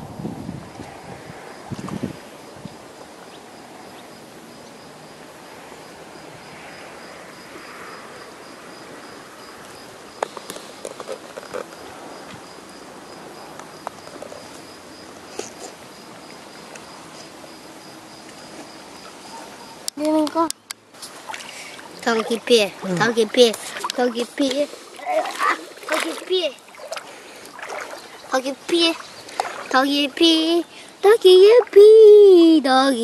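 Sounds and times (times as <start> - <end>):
insect chirping: 0.0 - 33.0
small splashes and clicks: 19.8 - 29.8.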